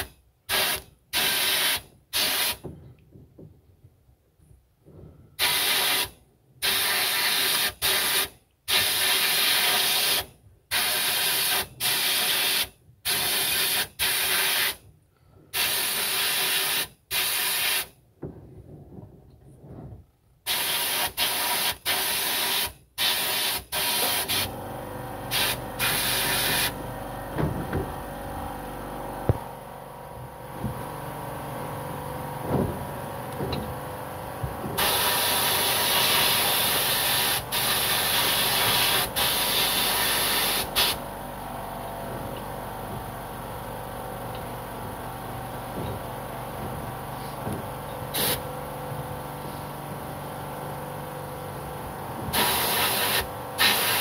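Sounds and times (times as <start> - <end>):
air and grit blasting hiss: 0.0 - 2.6, 5.4 - 14.8, 15.6 - 17.9, 20.5 - 24.5, 25.3 - 26.8, 34.8 - 41.0, 48.0 - 48.5, 52.3 - 54.0
low motor hum: 24.4 - 53.6.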